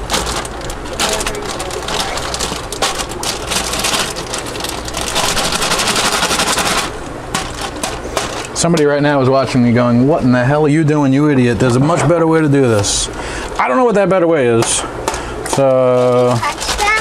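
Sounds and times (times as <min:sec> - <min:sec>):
wet plastic bag crackling: 0:00.0 - 0:08.6, 0:15.6 - 0:17.0
low steady hum: 0:00.0 - 0:17.0.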